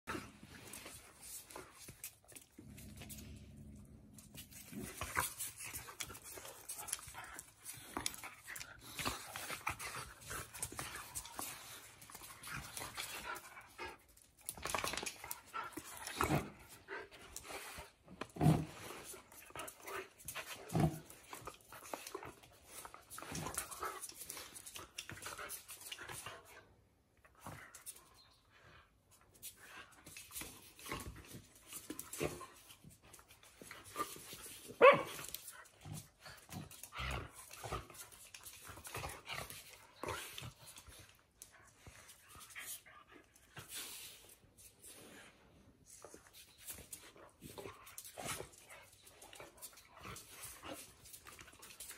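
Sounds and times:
dogs scuffling with sharp clicks: 0:00.0 - 0:51.9
scuffles on concrete floor: 0:29.1 - 0:37.0.

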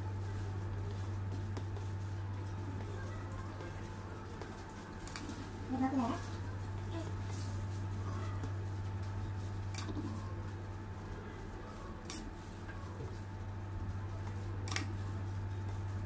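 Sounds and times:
low electrical hum: 0:00.0 - 0:16.0
light sharp clicks: 0:14.6 - 0:15.0.

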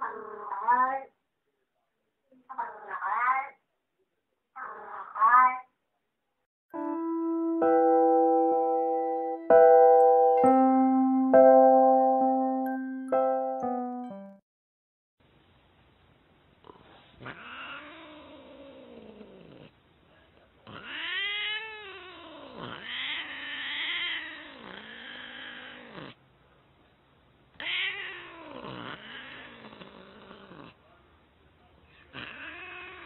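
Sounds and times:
cat meowing: 0:17.2 - 0:19.3, 0:20.6 - 0:26.1, 0:27.6 - 0:29.8, 0:32.1 - 0:33.0.

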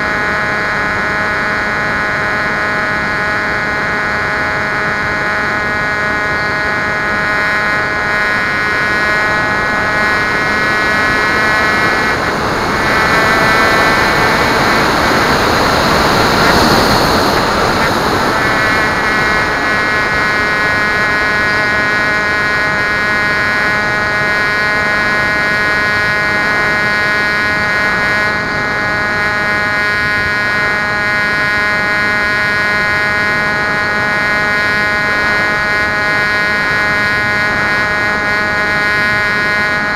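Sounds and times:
electric motor and propeller whining: 0:00.0 - 0:39.9
rush of wind: 0:00.0 - 0:39.9.

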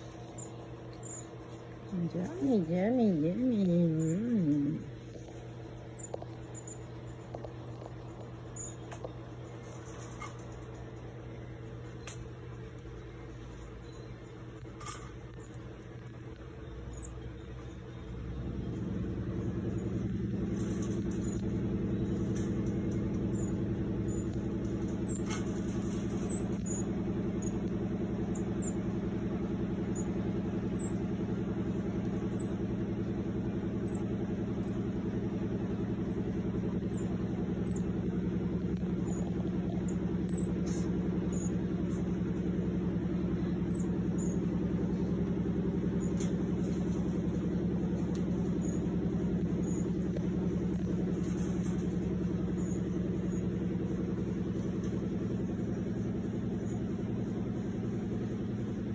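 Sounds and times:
low machine hum: 0:00.0 - 0:58.9.

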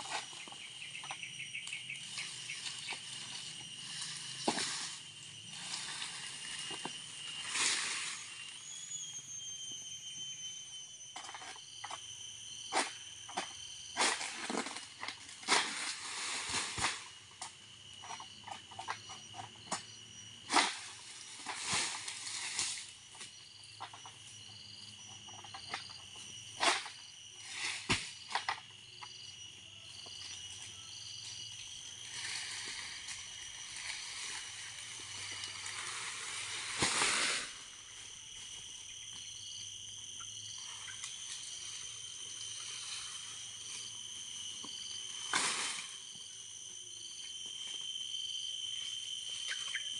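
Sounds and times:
insects and frogs calling: 0:00.0 - 0:49.9
palm fronds rustling: 0:01.7 - 0:08.6, 0:32.0 - 0:38.6.

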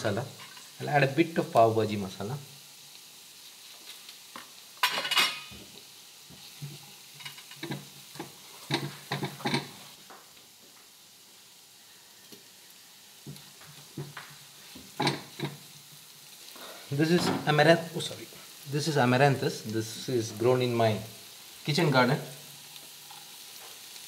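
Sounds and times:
faint sizzle: 0:00.0 - 0:24.0
spatula scraping a frying pan: 0:06.4 - 0:09.9.

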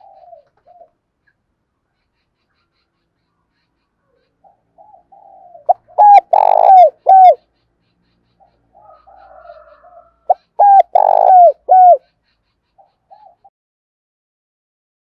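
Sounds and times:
dove cooing: 0:00.0 - 0:01.0, 0:04.4 - 0:07.4, 0:08.8 - 0:12.0, 0:12.9 - 0:13.5.

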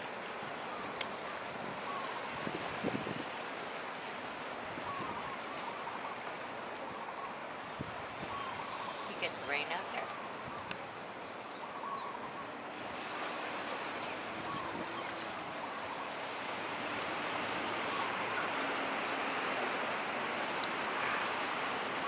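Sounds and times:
ocean surf breaking: 0:12.3 - 0:22.0.

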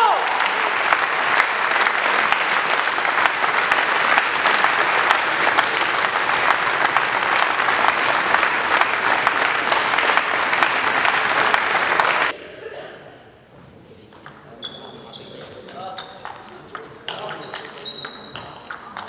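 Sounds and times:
applause: 0:00.0 - 0:12.4.

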